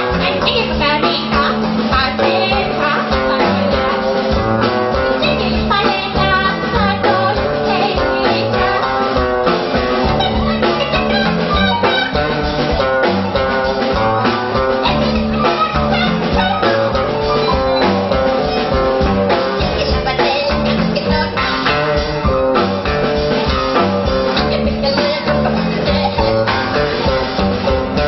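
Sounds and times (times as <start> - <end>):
woman singing into a microphone: 0.0 - 12.6, 19.5 - 22.1, 24.1 - 26.8
drum kit: 0.0 - 28.0
electric guitar: 0.0 - 28.0.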